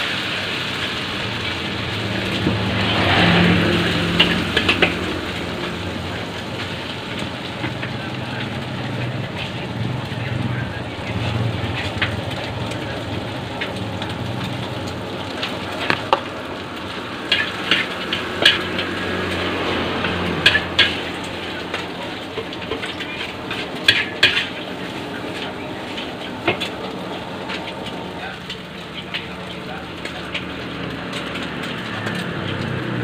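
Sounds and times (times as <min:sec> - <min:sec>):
rice sizzling in wok: 0:00.0 - 0:33.0
metal spatula scraping wok: 0:17.2 - 0:32.4.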